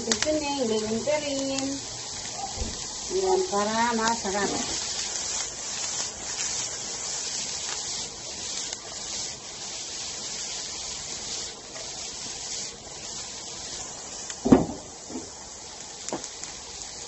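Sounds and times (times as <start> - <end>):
vegetables sizzling in frying pan: 0.0 - 17.0
loud knock: 14.4 - 15.3.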